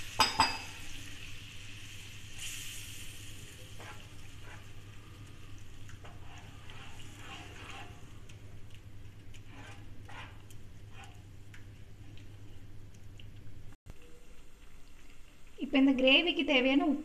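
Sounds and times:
gravy sizzling in frying pan: 0.0s - 17.0s
wooden spatula scraping pan: 3.7s - 4.8s, 5.9s - 8.3s, 9.3s - 11.3s.

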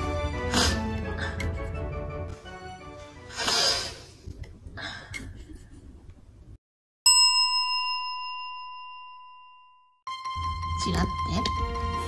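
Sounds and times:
person sniffing: 0.5s - 1.5s, 3.3s - 4.2s
bell-like ding: 7.1s - 10.0s.

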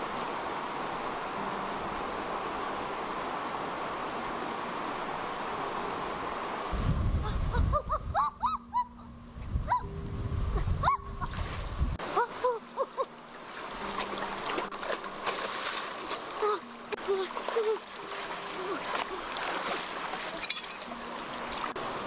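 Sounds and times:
low rumbling noise: 0.0s - 15.3s.

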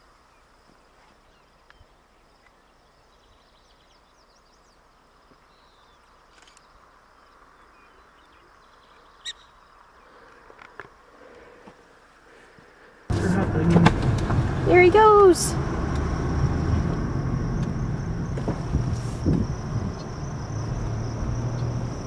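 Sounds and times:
small high chirps: 5.4s - 10.0s.

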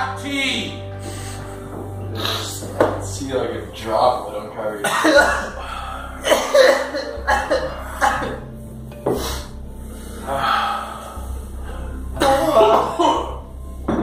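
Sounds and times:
people gasping and breathing hard: 1.0s - 3.0s, 4.9s - 13.5s.

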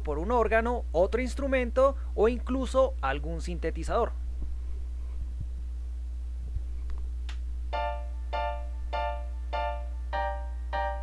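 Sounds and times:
steady low hum: 0.0s - 11.0s
piano offbeat chords: 7.7s - 11.0s.

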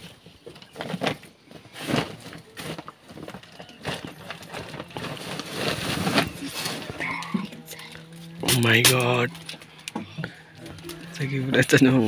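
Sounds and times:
hands rummaging in fabric bag: 0.0s - 7.4s
plastic wrappers crinkling: 0.0s - 10.0s.

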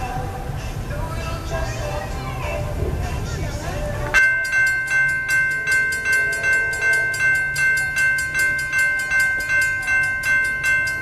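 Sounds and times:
crossing warning bell ringing: 4.1s - 11.0s.

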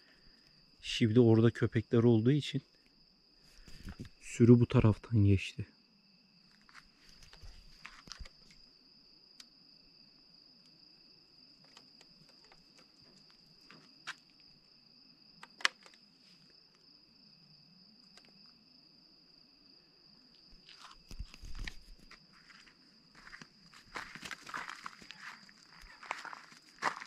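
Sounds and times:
crickets chirring: 0.0s - 27.0s
sharp clicks: 15.4s - 16.0s
footsteps: 20.6s - 27.0s.

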